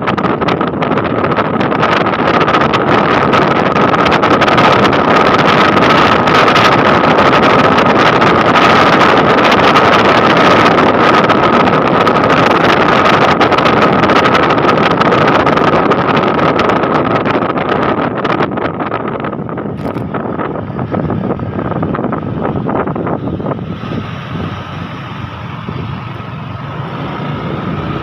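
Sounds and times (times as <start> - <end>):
wind rushing on microphone: 0.0 - 28.0
motor scooter engine running: 18.9 - 28.0.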